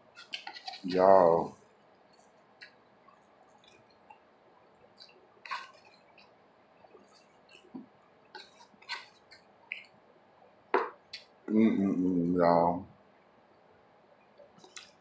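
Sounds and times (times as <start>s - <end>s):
fork eating off plate: 5.0s - 6.3s, 7.0s - 9.9s.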